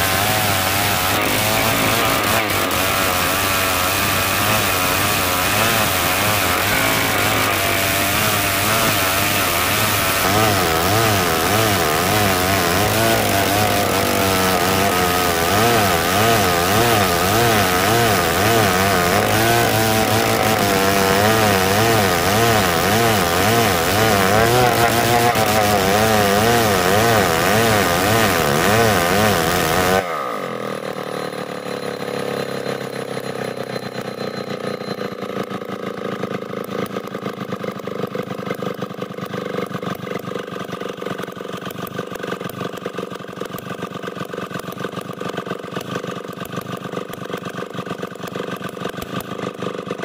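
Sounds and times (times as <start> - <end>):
chainsaw cutting wood: 0.0 - 50.0
chainsaw idling: 0.0 - 50.0.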